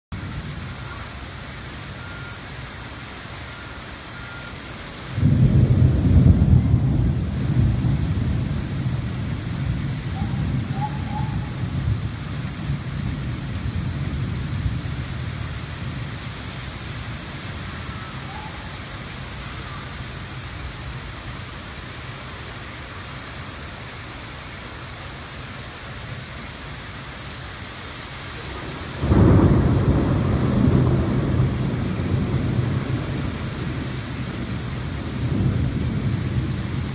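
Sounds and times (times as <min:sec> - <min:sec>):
steady rain falling: 0:00.1 - 0:36.9
low rumble of thunder: 0:05.1 - 0:18.9, 0:28.3 - 0:36.9.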